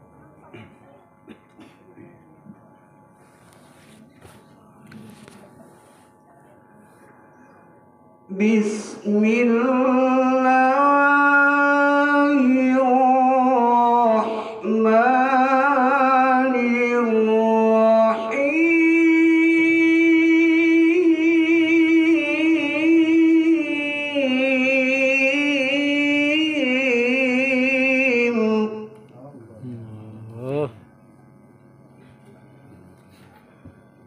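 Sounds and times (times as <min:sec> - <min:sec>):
man reciting melodically: 0:08.3 - 0:31.0.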